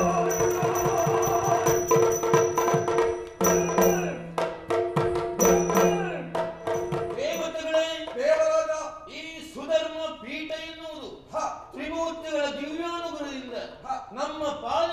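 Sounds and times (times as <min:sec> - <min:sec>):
quick drum strokes: 0:00.0 - 0:08.5.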